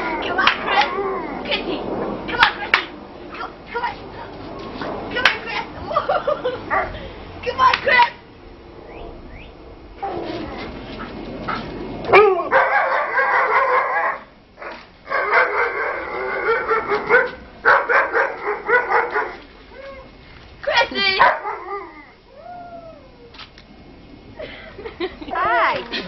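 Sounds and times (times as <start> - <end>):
dogs howling at play: 0.0 - 2.2, 10.0 - 20.2, 21.2 - 23.4.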